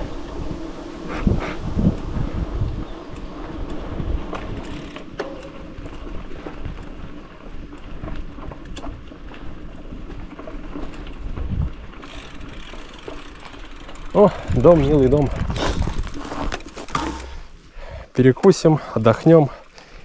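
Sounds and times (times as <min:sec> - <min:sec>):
wind rumble on microphone: 0:00.0 - 0:12.6, 0:13.7 - 0:17.5
bike clicks and rattles: 0:01.9 - 0:17.6.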